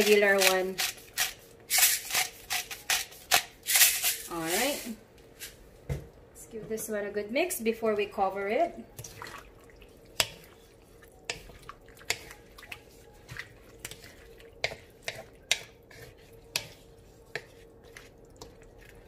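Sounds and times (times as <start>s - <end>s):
spatula stirring in a wok: 0.0s - 3.4s, 10.0s - 19.0s
wet squelching: 9.0s - 16.4s.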